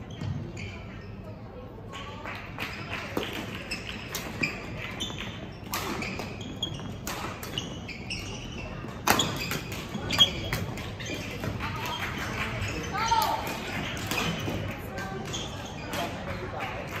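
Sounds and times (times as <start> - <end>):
shoes squeaking on court: 0.0 - 1.6, 2.8 - 16.4
rackets hitting shuttlecock: 5.6 - 12.4, 13.4 - 16.3.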